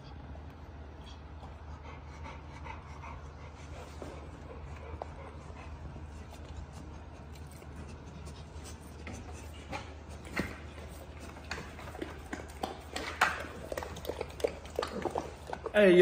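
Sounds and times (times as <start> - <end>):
low steady hum: 0.0 - 16.0.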